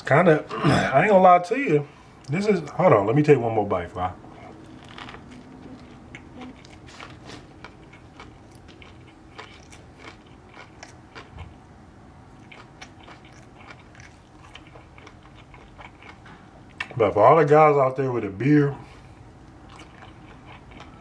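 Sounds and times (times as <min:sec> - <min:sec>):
person chewing crispy sandwich: 0:04.3 - 0:17.0, 0:18.9 - 0:21.0.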